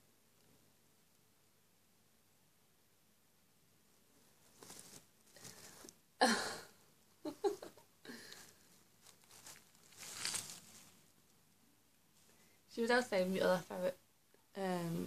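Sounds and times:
straw rustling and crackling: 4.4s - 5.9s, 8.2s - 11.3s.

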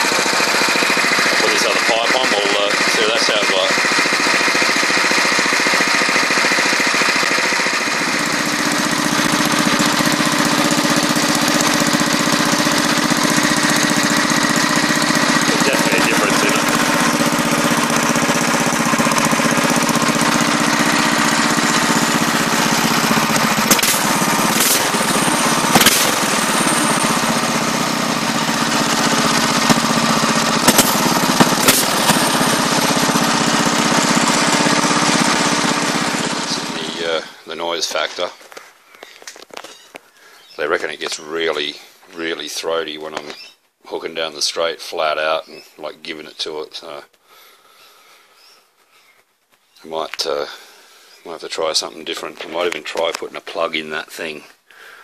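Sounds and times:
go-kart engine exhaust: 0.0s - 37.6s.

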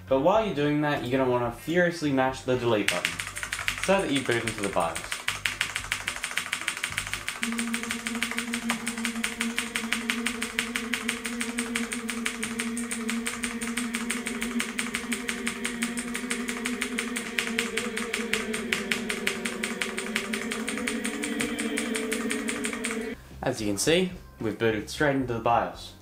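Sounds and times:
steady low hum: 7.4s - 23.3s.

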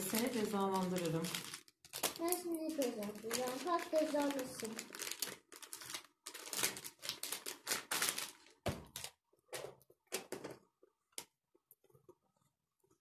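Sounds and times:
plastic packaging crinkling: 0.0s - 10.5s
packages knocking on table: 8.6s - 10.7s.

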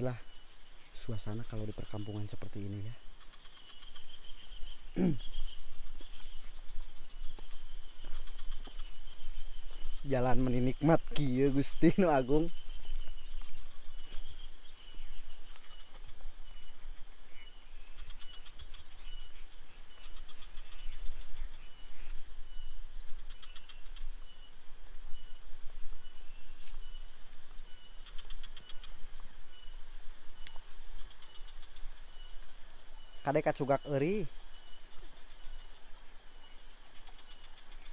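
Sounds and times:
insect trilling: 0.0s - 37.9s
insects chirping: 0.0s - 37.9s.

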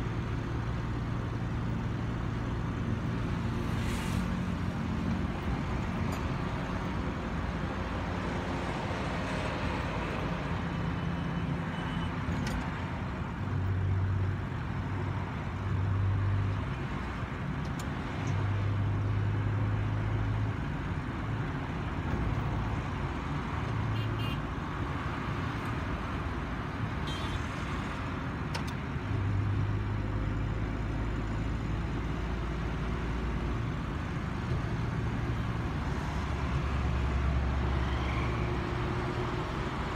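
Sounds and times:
in-cabin road and engine noise: 0.0s - 39.9s.

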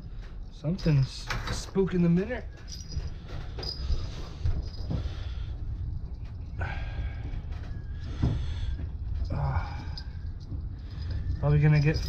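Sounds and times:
steady low rumble: 0.0s - 12.0s
small bell jingling: 0.5s - 6.6s, 9.2s - 12.0s.

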